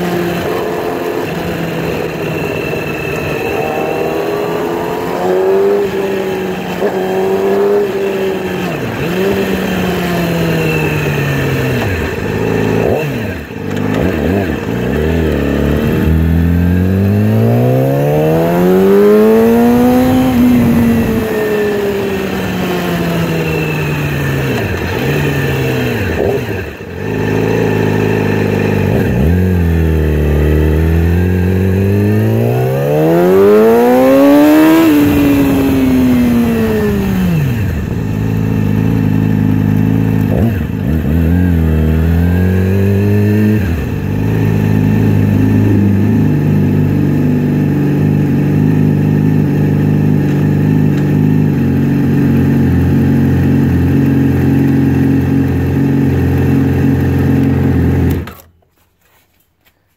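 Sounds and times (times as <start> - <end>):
motorcycle engine revving: 0.0 - 59.2.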